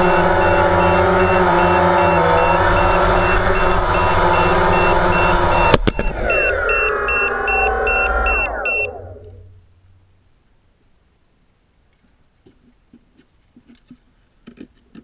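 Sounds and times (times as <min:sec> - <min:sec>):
high alarm buzzer beeps: 0:00.0 - 0:09.0
drone motors and propellers: 0:00.0 - 0:09.6.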